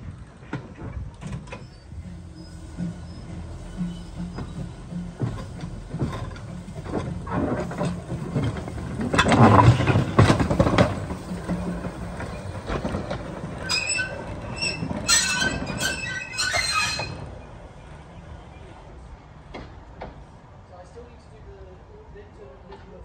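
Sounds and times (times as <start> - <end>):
steam locomotive rumbling past: 0.0 - 20.6
wheels squealing on rails: 0.4 - 18.6.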